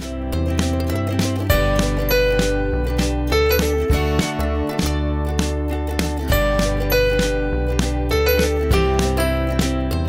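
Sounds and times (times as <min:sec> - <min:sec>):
plucked notes: 0:00.0 - 0:10.0
sustained bass notes: 0:00.0 - 0:10.0.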